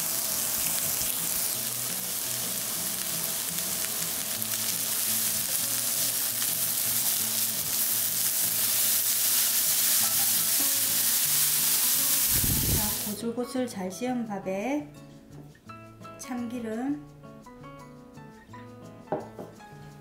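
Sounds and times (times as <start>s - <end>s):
carrots sizzling in a frying pan: 0.0s - 13.2s.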